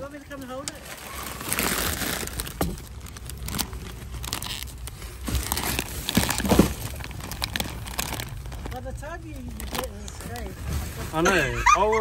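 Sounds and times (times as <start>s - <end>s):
plastic bags crinkling: 0.0s - 11.6s
items knocking: 5.2s - 8.2s.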